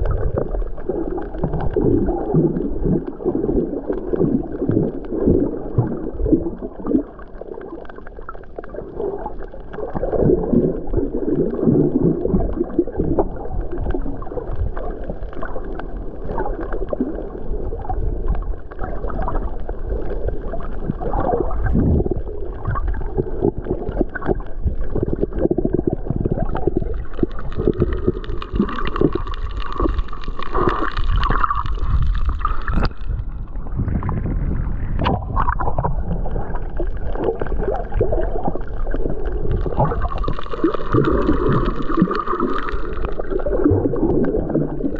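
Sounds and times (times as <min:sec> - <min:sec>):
low underwater rumble: 0:00.0 - 0:44.9
underwater gurgling and sloshing: 0:00.0 - 0:44.9
hissing water splash: 0:27.2 - 0:33.3.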